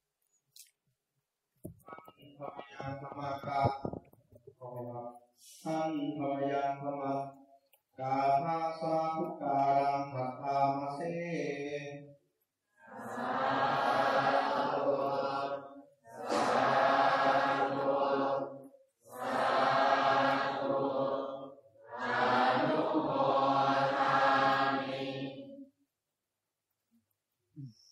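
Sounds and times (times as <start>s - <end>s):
voices chanting in unison: 12.8s - 25.7s.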